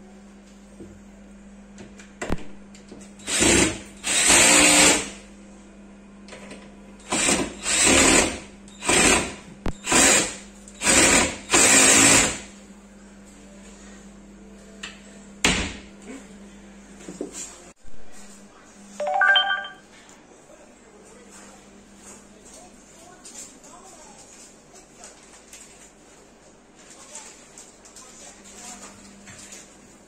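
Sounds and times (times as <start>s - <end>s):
cordless drill bursts: 3.2s - 5.1s, 7.0s - 12.4s.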